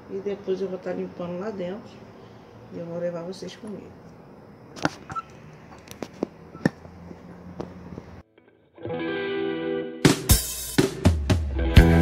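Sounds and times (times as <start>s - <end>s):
background music with guitar: 8.3s - 12.0s.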